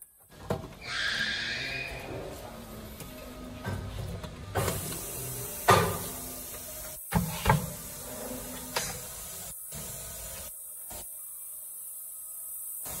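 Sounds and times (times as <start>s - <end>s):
steady hiss: 4.6s - 13.0s.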